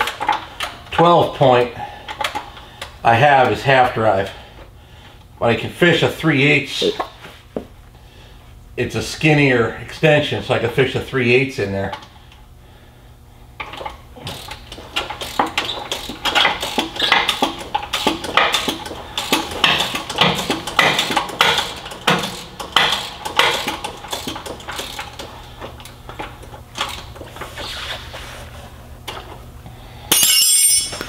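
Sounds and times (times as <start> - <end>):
hand ratchet clicking: 13.6 - 27.3
metal tool clinks: 30.1 - 31.0.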